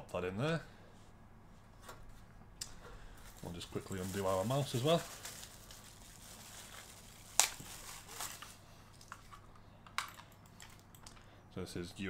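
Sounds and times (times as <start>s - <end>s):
mouse cable handling noise: 6.7s - 11.3s.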